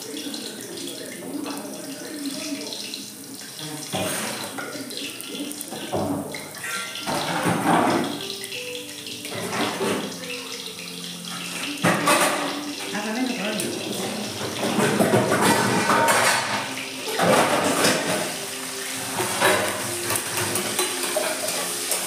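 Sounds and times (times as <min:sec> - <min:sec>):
tap water running and splashing: 0:00.0 - 0:22.0.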